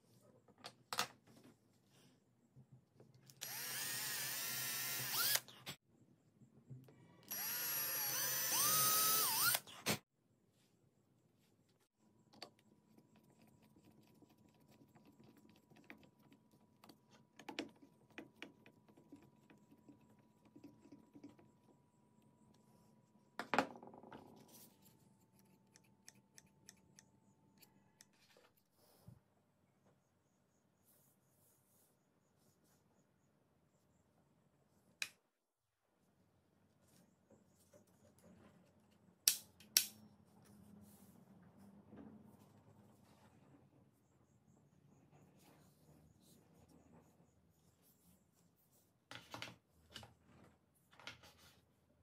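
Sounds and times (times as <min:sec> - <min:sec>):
drill whining slowly driving screws: 0:03.4 - 0:05.5, 0:07.2 - 0:09.7
electric drill boring into wood: 0:03.4 - 0:05.5, 0:07.3 - 0:09.7.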